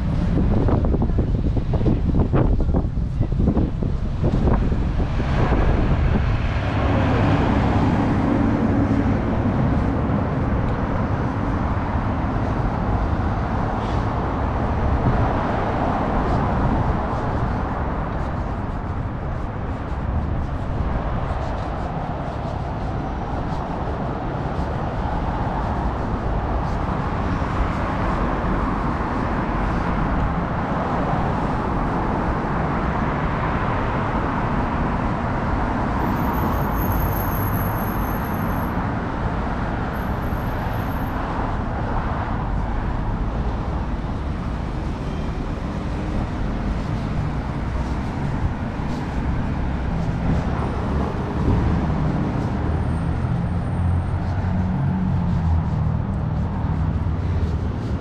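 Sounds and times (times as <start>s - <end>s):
subway train rumble: 0.0s - 58.0s.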